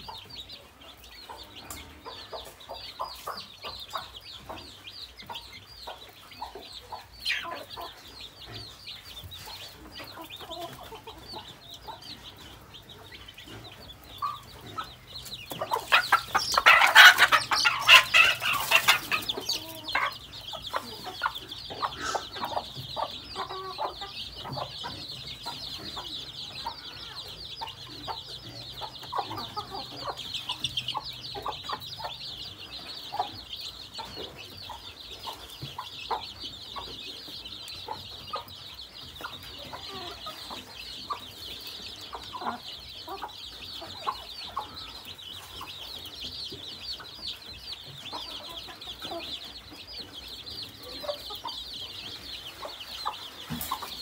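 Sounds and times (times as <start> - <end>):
chickens clucking: 0.0 - 54.0
chicks peeping: 0.0 - 54.0.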